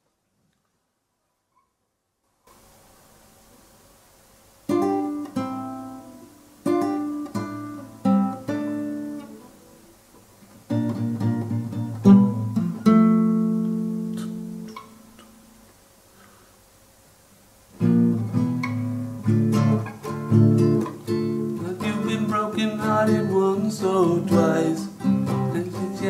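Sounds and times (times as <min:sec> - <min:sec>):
acoustic guitar strumming chords: 0:04.7 - 0:10.0, 0:10.7 - 0:15.6, 0:17.7 - 0:26.0.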